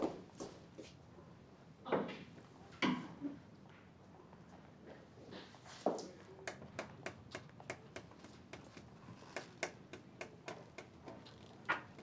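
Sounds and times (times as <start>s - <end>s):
fingers tapping on tabletop: 6.5s - 12.0s.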